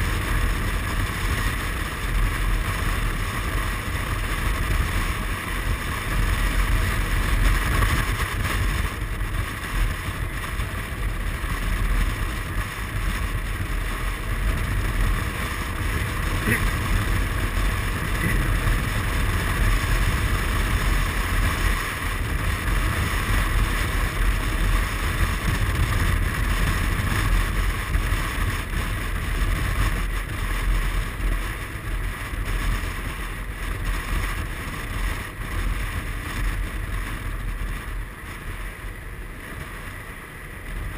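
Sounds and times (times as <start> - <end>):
scooter engine running: 0.0 - 40.9
wind rushing over microphone: 0.0 - 40.9.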